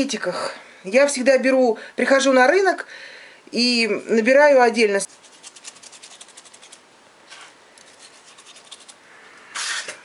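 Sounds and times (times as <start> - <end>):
spice rubbing between fingers: 5.1 - 9.0
short hiss: 9.4 - 10.0.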